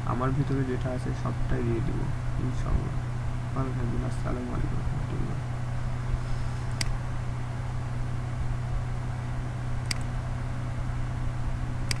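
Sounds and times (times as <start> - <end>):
low electrical hum: 0.0 - 12.0
computer mouse clicks: 6.7 - 7.0, 9.8 - 10.1.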